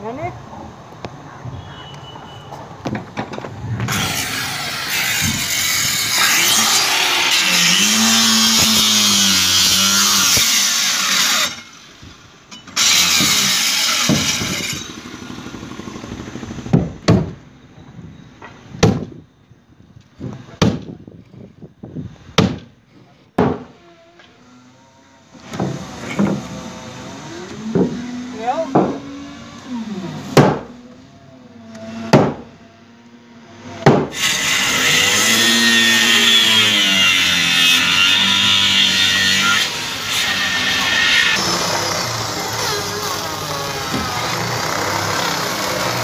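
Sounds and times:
electric grinder cutting: 3.9s - 12.0s, 12.8s - 16.5s, 25.8s - 30.3s, 34.1s - 46.0s
sharp knocks: 30.4s - 30.7s, 32.1s - 32.5s.

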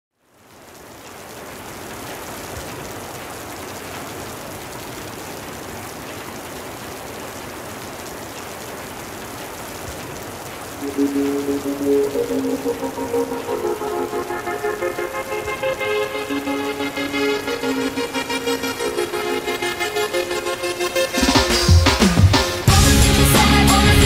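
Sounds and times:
steady rushing noise: 10.8s - 22.7s.

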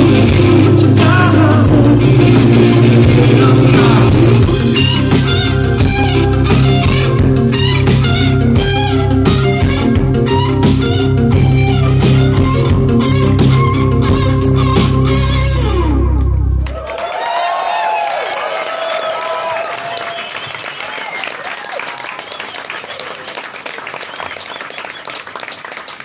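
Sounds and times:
man singing lead vocal: 0.0s - 5.3s
live rock band playing: 0.0s - 16.6s.

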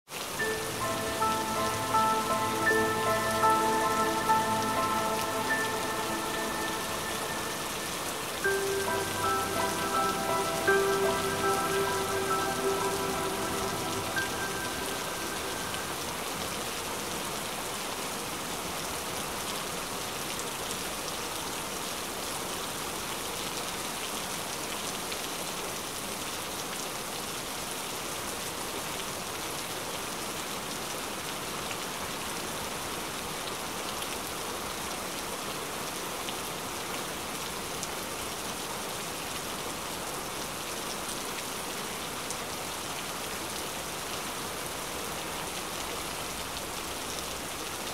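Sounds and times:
rain hissing: 0.2s - 16.4s
music cue: 0.4s - 16.4s.

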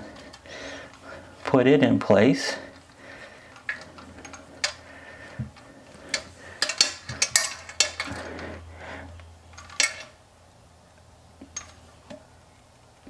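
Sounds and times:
metal fittings clinking and scraping: 2.4s - 8.6s, 9.5s - 10.2s.

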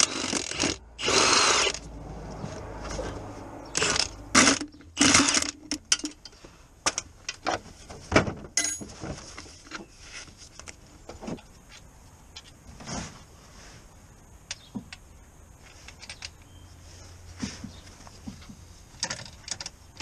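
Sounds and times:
metallic clicks and knocks: 3.8s - 7.6s, 18.2s - 20.0s.

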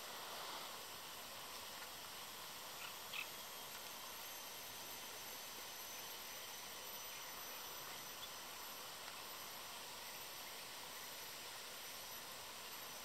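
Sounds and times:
outdoor background hiss: 0.0s - 13.0s.

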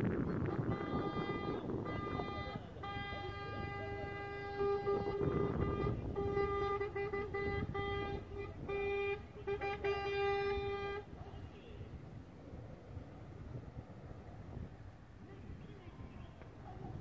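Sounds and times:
trucks rumbling past: 0.0s - 15.6s
vehicle horn honking: 0.2s - 11.8s.

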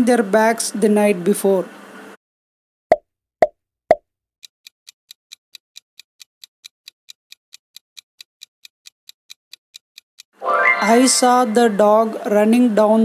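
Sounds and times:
clock ticking: 4.4s - 10.4s.

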